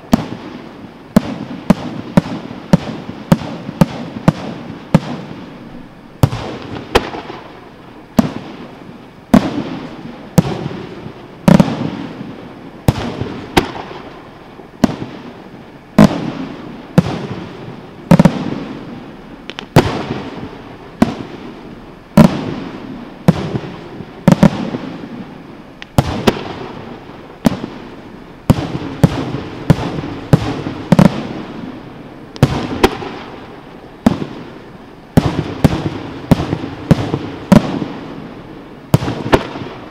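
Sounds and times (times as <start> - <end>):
firework shells bursting: 1.1 - 15.3, 25.8 - 39.9.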